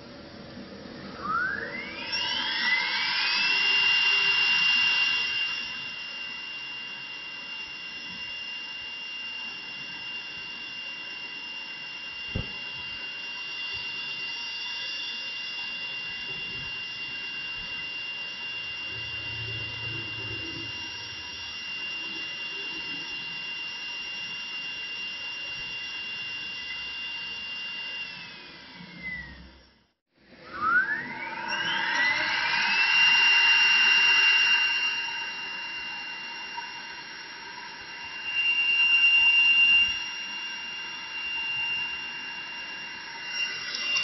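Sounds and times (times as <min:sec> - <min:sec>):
router spindle whining: 0:00.6 - 0:29.8, 0:30.4 - 0:44.0
single knock: 0:12.3 - 0:12.6.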